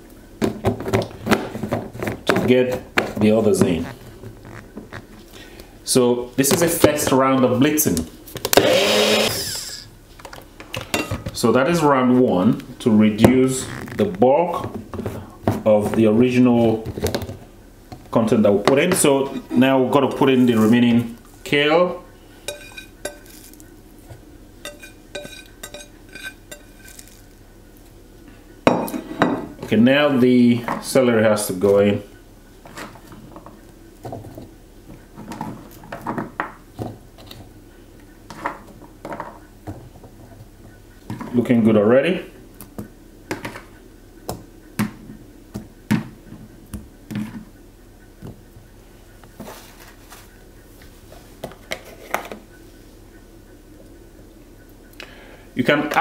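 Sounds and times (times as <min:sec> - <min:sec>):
kitchenware clinking: 0:10.8 - 0:11.3, 0:22.5 - 0:23.6, 0:24.6 - 0:27.2, 0:28.7 - 0:29.5.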